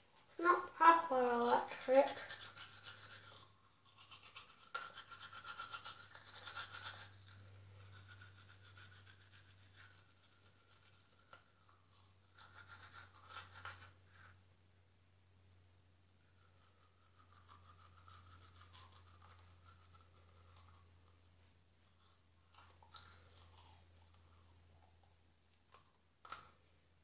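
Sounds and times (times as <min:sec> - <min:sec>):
electric toothbrush scrubbing: 0:00.4 - 0:11.4, 0:16.4 - 0:20.8.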